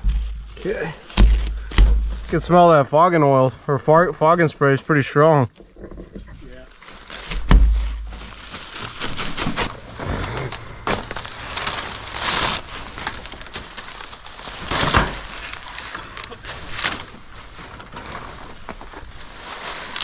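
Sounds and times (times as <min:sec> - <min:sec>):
knocks and clatters on wood: 0:00.0 - 0:02.5, 0:07.3 - 0:08.2.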